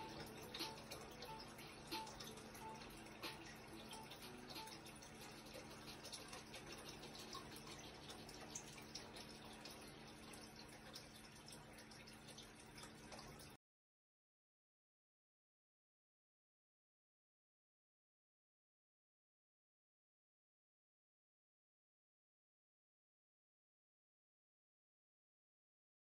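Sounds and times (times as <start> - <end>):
low steady hum: 0.0 - 13.6.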